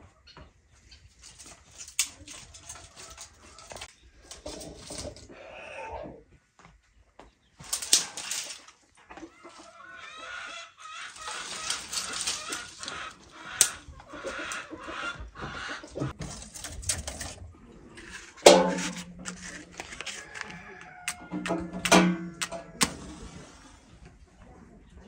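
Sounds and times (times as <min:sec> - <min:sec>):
hens clucking: 0:00.0 - 0:06.4, 0:07.6 - 0:25.0
twigs rustling and snapping: 0:01.1 - 0:05.3, 0:07.6 - 0:09.8, 0:10.9 - 0:14.7, 0:18.0 - 0:23.0.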